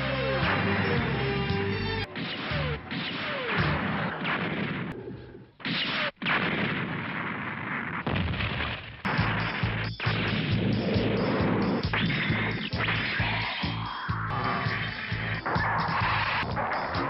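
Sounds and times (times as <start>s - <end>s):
explosions: 2.0s - 17.0s
beam rifle firing: 2.1s - 13.8s.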